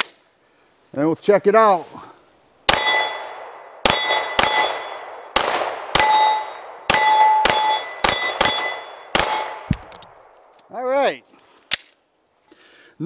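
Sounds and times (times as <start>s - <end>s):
pistol shots: 2.7s - 10.2s.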